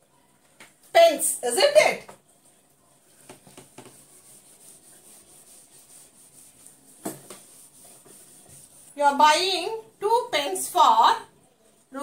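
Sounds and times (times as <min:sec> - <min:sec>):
duster rubbing on whiteboard: 0:03.2 - 0:09.2.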